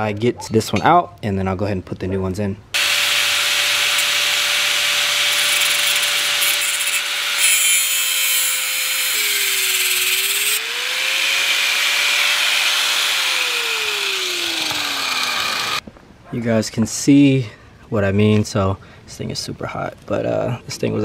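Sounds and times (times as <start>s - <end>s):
angle grinder motor whine: 2.8s - 15.8s
grinding wheel cutting metal: 2.8s - 15.8s.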